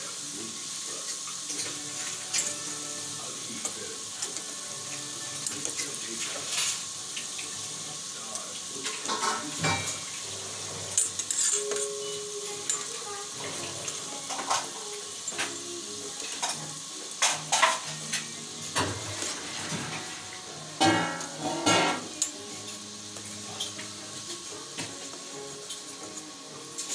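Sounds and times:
pastries sizzling in hot oil: 0.0 - 26.9
metal utensils clinking on pan: 1.0 - 7.6, 8.3 - 20.2, 20.8 - 22.4.

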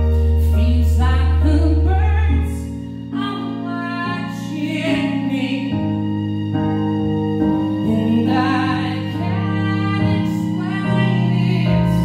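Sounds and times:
deep sustained bass note: 0.0 - 4.0
person singing: 0.0 - 6.0, 7.8 - 12.0
keyboard: 0.0 - 12.0
violin: 0.0 - 12.0.

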